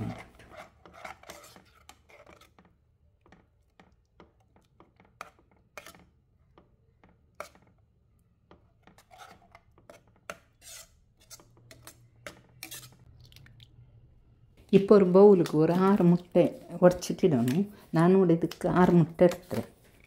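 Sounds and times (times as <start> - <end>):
spatula scraping a pan: 0.0 - 2.8, 4.8 - 6.2, 7.3 - 7.8, 8.6 - 13.1, 15.4 - 18.0, 18.8 - 20.0.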